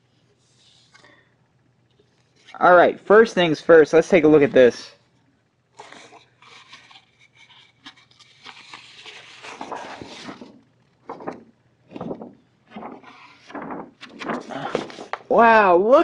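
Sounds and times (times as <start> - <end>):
paper sheet rustling: 5.8 - 15.5.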